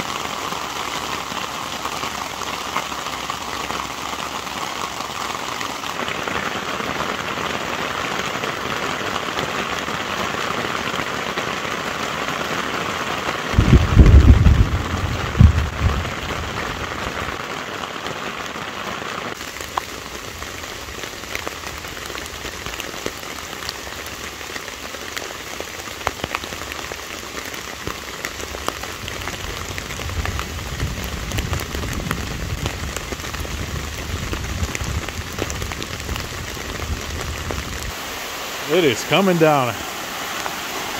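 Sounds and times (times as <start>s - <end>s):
heavy rain on a tarp: 0.0s - 40.9s
thunderclap and rumble: 13.5s - 17.1s, 29.2s - 37.9s.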